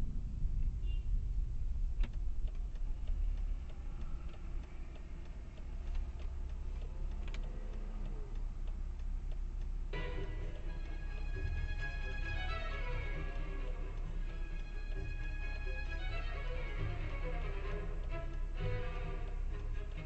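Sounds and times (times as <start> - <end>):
car engine idling: 0.0 - 20.0
faint ticks: 2.0 - 20.0
background music: 9.4 - 20.0.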